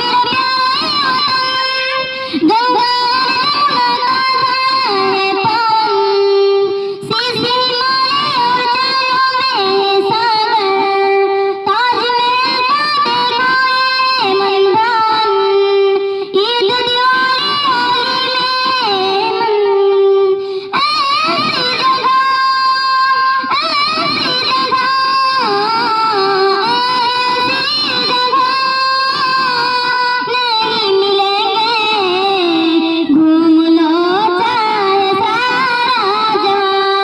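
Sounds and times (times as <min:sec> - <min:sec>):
woman singing unaccompanied: 0:00.0 - 0:37.0.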